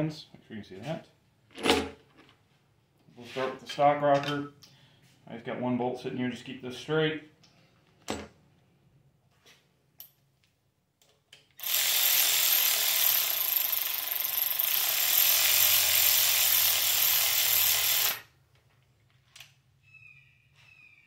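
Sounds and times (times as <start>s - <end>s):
electric ratchet running: 11.6s - 18.3s.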